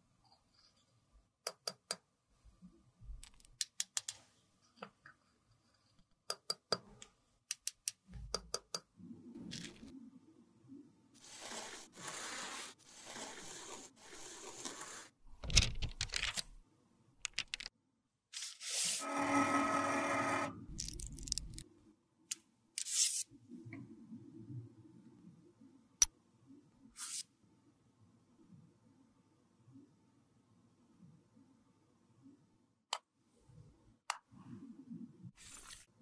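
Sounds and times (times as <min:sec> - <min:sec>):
rasping buzzy rub: 0:11.2 - 0:15.1
metal spatula scraping powder: 0:11.2 - 0:15.2.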